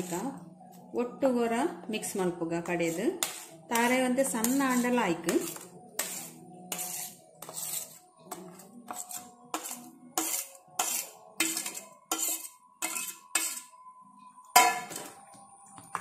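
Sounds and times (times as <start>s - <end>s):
steel spoon clinking on steel: 14.6s - 15.0s.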